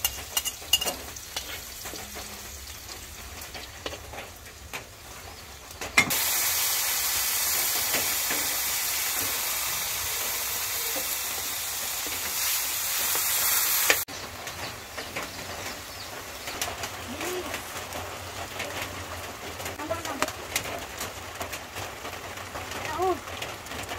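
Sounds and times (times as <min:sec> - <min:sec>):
meat sizzling in a pan: 0:00.0 - 0:14.2.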